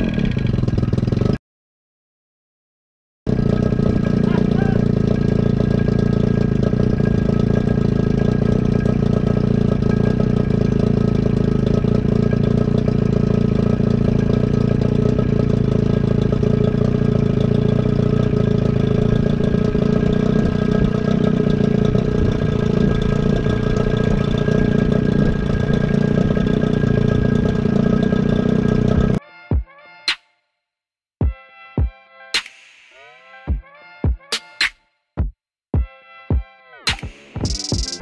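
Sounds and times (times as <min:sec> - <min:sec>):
outboard motor running: 0:03.3 - 0:29.2.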